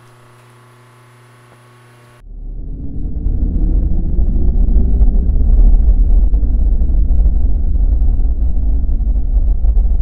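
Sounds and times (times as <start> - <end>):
low hum: 0.0 - 10.0
deep bass drone: 2.2 - 10.0.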